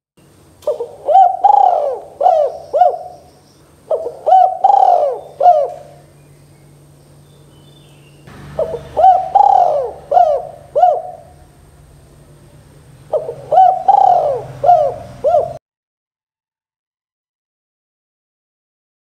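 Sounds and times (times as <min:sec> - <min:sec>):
dove cooing: 0:00.6 - 0:03.3, 0:03.9 - 0:06.1, 0:08.4 - 0:15.6.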